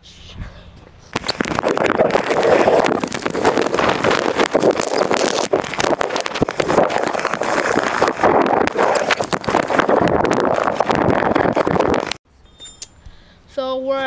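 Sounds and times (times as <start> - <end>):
wind noise on microphone: 0.0 - 12.2
small wheels rattling on pavement: 1.2 - 12.1.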